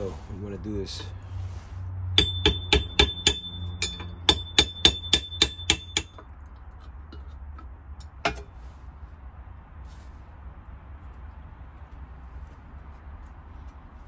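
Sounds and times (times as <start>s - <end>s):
hammer striking metal punch: 2.2s - 6.3s.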